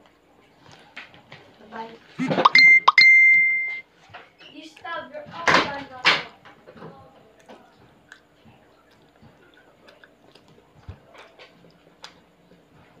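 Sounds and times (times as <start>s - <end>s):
person chewing: 8.0s - 12.2s.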